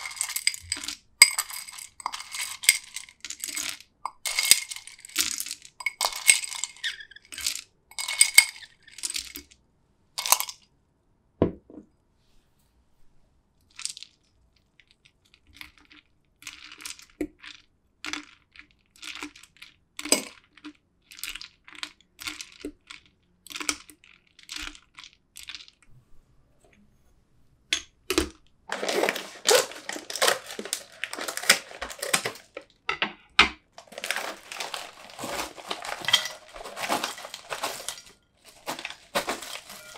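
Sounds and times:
plastic bag crinkling: 0:00.0 - 0:09.4, 0:28.7 - 0:32.8, 0:33.7 - 0:39.9
ice cubes clinking into glass: 0:00.0 - 0:09.5, 0:10.2 - 0:10.6, 0:28.7 - 0:32.7, 0:33.8 - 0:39.9
spoon stirring ice in glass: 0:00.0 - 0:09.5, 0:28.7 - 0:32.6, 0:33.8 - 0:39.9.

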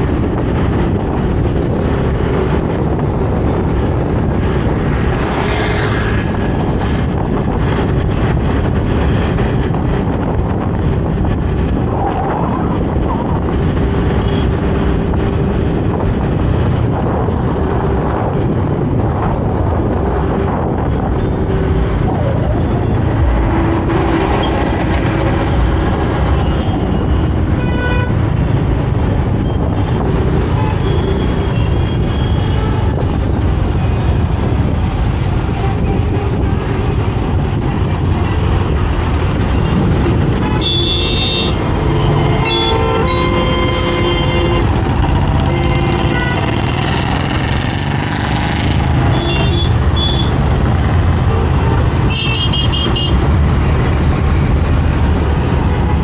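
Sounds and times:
vehicle horns tooting: 0:40.1 - 0:44.8, 0:45.4 - 0:46.7, 0:49.0 - 0:50.4, 0:52.0 - 0:53.2.

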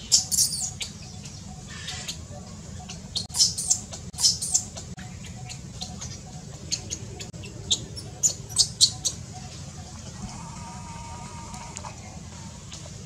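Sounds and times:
infant monkey squealing: 0:00.0 - 0:00.8, 0:03.2 - 0:04.7.

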